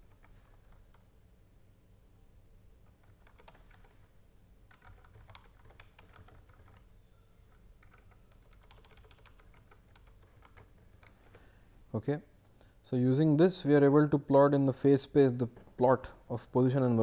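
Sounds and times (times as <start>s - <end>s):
typing on computer keyboard: 0.0s - 1.0s, 2.8s - 4.0s, 4.7s - 6.9s, 7.5s - 11.5s.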